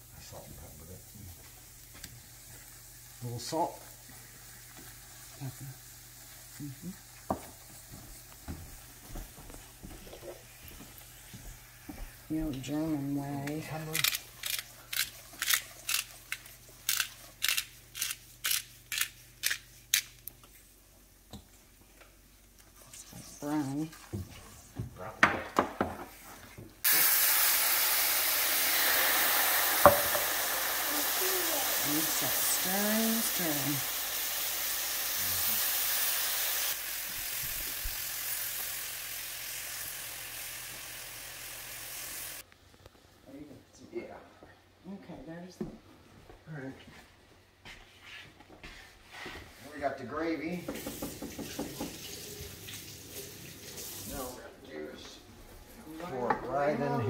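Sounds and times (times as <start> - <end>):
gravy sizzling in a skillet: 0.0 - 18.4, 26.8 - 42.5, 50.5 - 54.5
pepper grinder grinding: 13.4 - 20.3.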